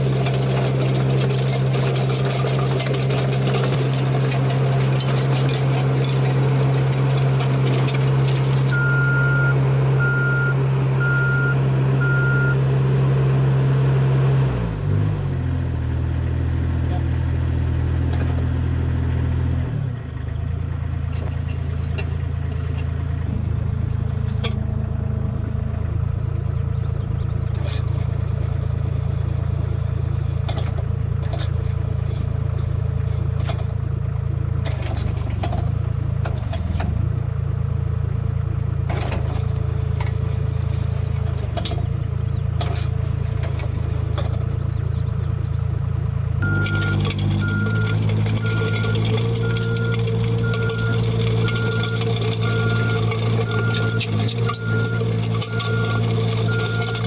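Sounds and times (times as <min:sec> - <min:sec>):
stones clattering and scraping: 0:00.0 - 0:08.8, 0:18.1 - 0:18.6, 0:21.0 - 0:24.7, 0:29.3 - 0:33.8, 0:42.6 - 0:44.5, 0:46.6 - 0:57.0
rake rotor churning gravel: 0:00.0 - 0:13.8, 0:14.7 - 0:57.0
diesel engine under load: 0:00.0 - 0:57.0.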